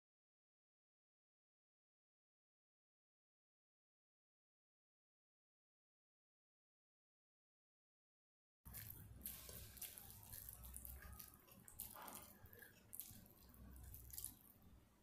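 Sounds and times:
fingers squishing rice: 8.7 - 15.0.

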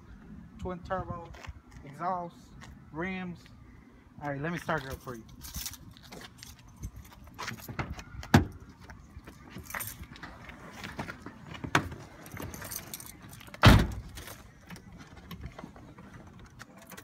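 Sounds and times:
car keys jangling: 4.8 - 8.2, 9.2 - 10.2, 12.1 - 15.5, 16.4 - 17.0.

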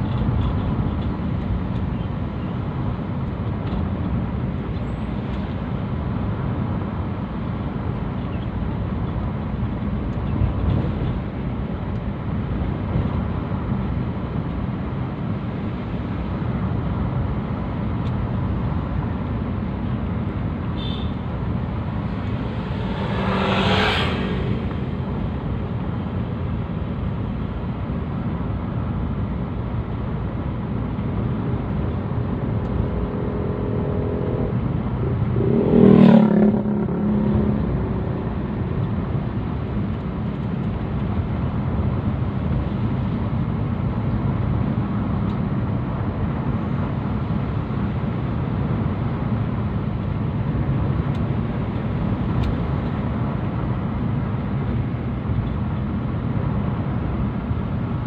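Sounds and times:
car engine and tyre noise: 0.0 - 58.0.

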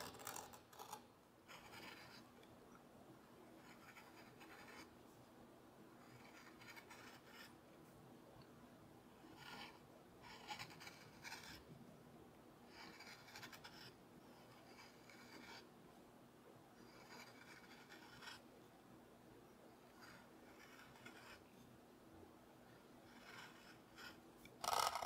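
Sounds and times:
gouge scraping wood: 23.1 - 25.0.

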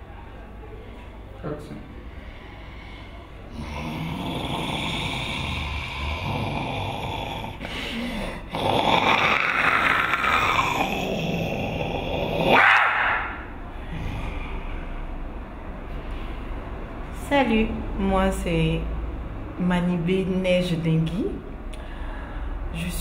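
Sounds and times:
rough breathy monster growl: 2.1 - 12.6, 13.7 - 15.1.

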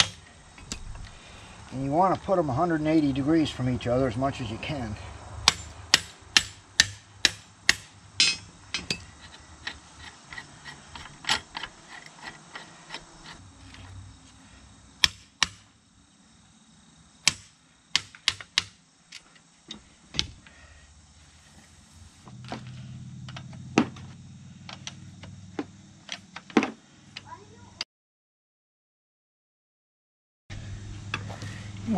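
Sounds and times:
metal tools clinking and knocking: 8.2 - 13.9.

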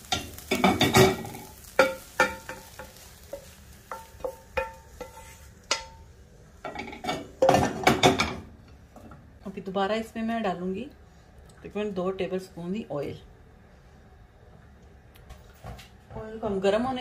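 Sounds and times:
spatula scraping a frying pan: 0.0 - 6.0.

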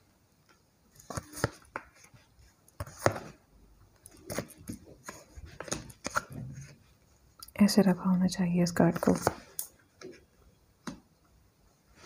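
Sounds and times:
cards sliding: 1.0 - 2.2, 2.8 - 3.4, 4.1 - 6.3, 9.0 - 10.1.

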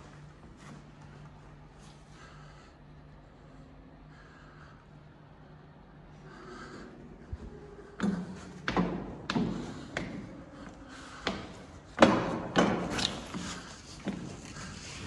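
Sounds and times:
footsteps on wooden steps: 8.0 - 14.6.

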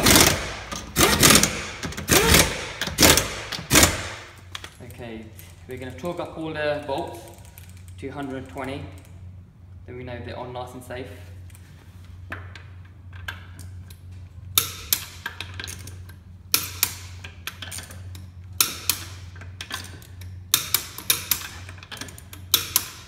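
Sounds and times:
torque wrench clicking and ratcheting: 0.0 - 4.7, 14.6 - 23.0
steady low hum: 0.0 - 23.0.

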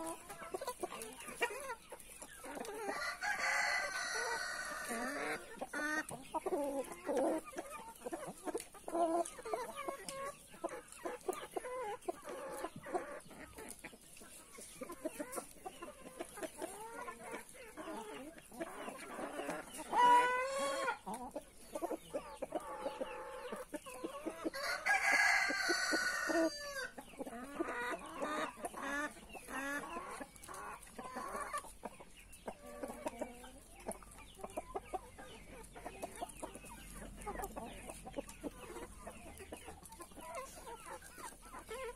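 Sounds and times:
chickens clucking: 0.0 - 41.9
rooster crowing: 2.9 - 5.1, 24.6 - 26.9.

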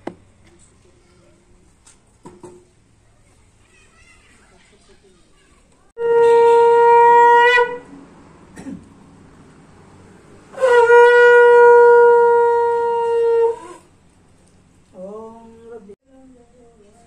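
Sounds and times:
conch shell blasts: 6.0 - 7.9, 10.5 - 13.9.

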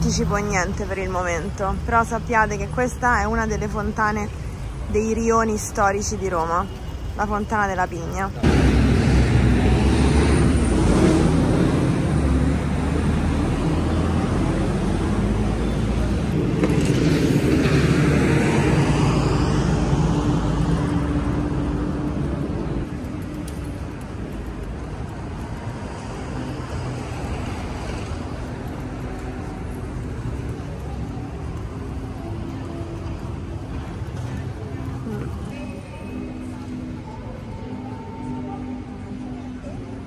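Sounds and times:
quiet street ambience: 0.0 - 40.0
traffic engines running: 0.0 - 40.0
vehicle passing close by: 8.4 - 22.9.

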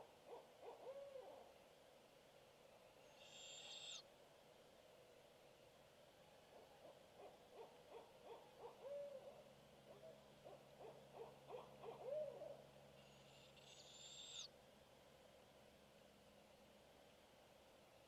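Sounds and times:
distant owl hooting: 0.3 - 1.4, 3.1 - 4.0, 7.2 - 9.4, 10.0 - 14.5.

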